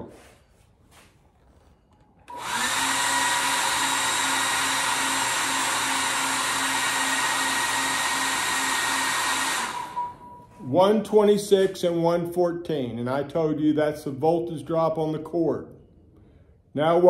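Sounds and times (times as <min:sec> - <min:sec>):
thin whine: 0:00.4 - 0:10.7
load tester blower rush: 0:02.3 - 0:11.9.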